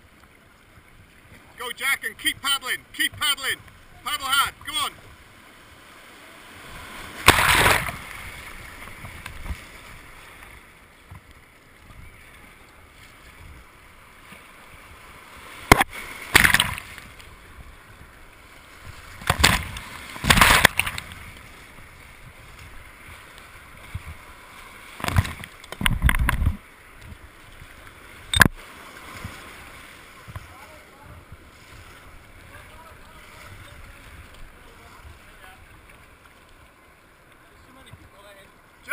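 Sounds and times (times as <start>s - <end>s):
paddle strokes splashing: 0.0s - 38.9s
waves slapping boat: 0.0s - 38.9s
white water rushing: 1.4s - 10.9s, 11.5s - 38.9s.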